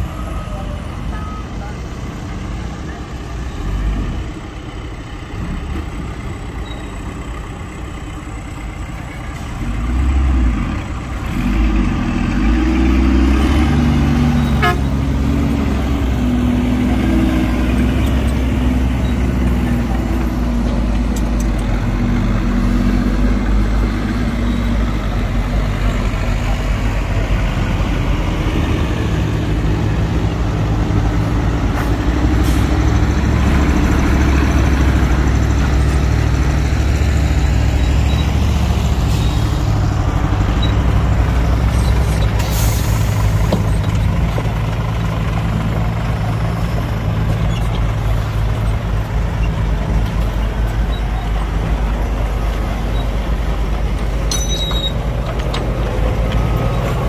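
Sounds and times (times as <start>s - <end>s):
heavy diesel machinery engines: 0.0s - 57.0s.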